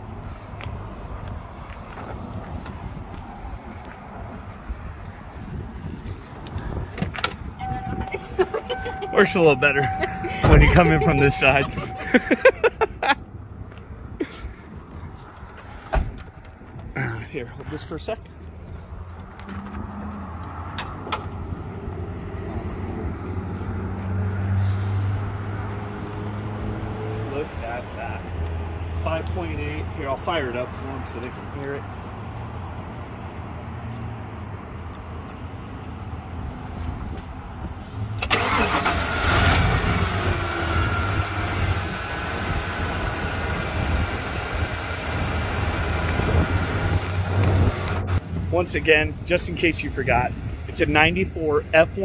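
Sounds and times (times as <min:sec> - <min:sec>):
vehicle motor hum: 0:06.1 - 0:13.2, 0:38.2 - 0:49.3
engine starting and idling: 0:38.2 - 0:41.9.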